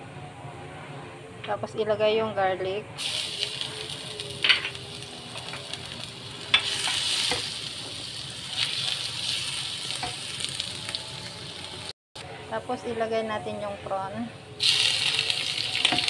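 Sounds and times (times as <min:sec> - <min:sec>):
garlic sizzling in oil: 0:03.0 - 0:11.9, 0:14.6 - 0:16.0.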